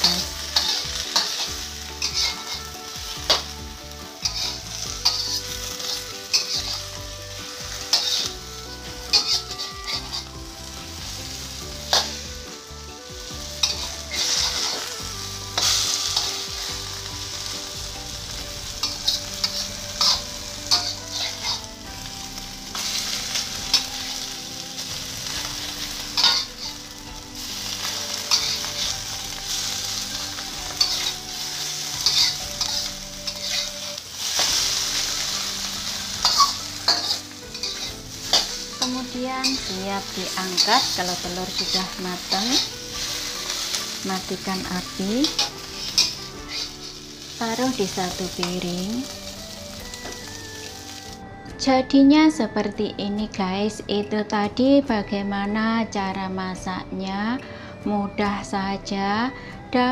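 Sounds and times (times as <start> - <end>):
spatula scraping and tapping pan: 0.0 - 2.6, 4.2 - 7.0, 7.8 - 10.4, 13.6 - 14.9, 25.7 - 26.8, 28.1 - 29.6, 32.0 - 34.6, 36.1 - 39.8, 45.2 - 47.0
food sizzling in hot oil: 0.0 - 51.2.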